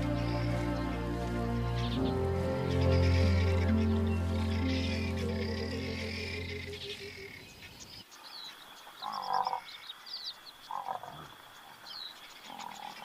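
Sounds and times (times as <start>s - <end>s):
music: 0.0s - 7.1s
high-pitched drone: 0.0s - 7.3s.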